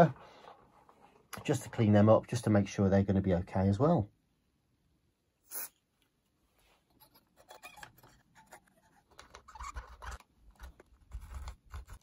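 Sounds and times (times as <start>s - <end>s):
cotton swab scratching metal: 6.9s - 12.0s.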